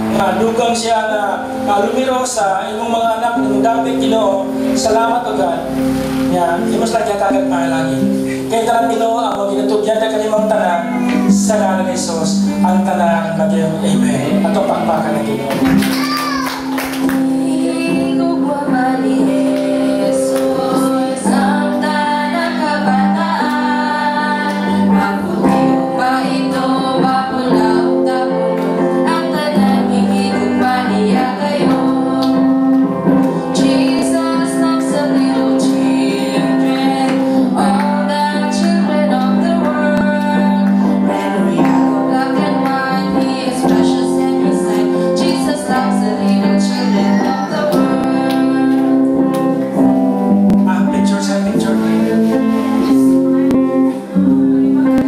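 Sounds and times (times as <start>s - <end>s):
instrumental accompaniment: 0.0s - 55.0s
women singing worship song: 15.3s - 55.0s.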